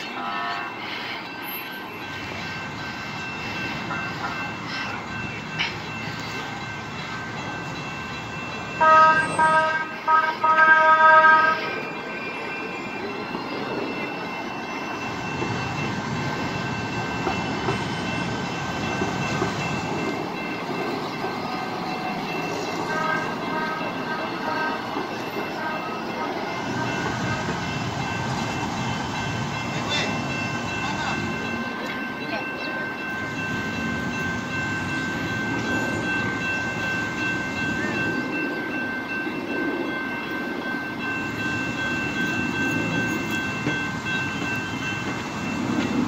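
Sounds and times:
trolley horn blasts: 0.0s - 0.8s, 8.8s - 11.8s, 22.8s - 27.6s
trolley rumbling through crossing: 0.0s - 46.0s.

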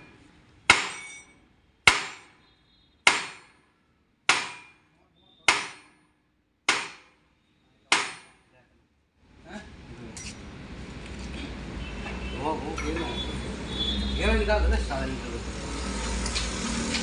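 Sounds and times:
sledgehammer striking metal axle: 0.0s - 2.4s, 3.1s - 3.7s, 4.3s - 4.9s, 5.5s - 6.1s, 6.7s - 7.2s, 7.9s - 8.4s.

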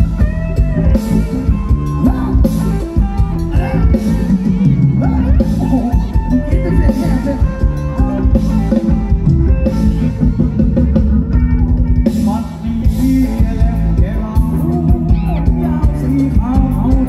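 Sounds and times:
person singing: 0.0s - 10.6s, 12.0s - 17.0s
drum kit beat: 0.0s - 17.0s
guitar: 0.0s - 17.0s
live band dance music: 0.0s - 17.0s.

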